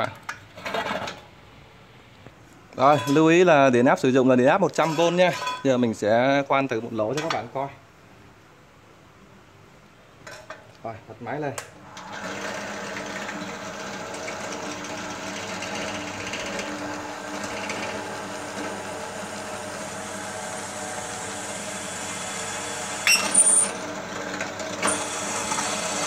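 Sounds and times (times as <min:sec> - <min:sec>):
drill press motor running: 0:11.8 - 0:26.0
metallic squeal and clatter: 0:23.0 - 0:23.7.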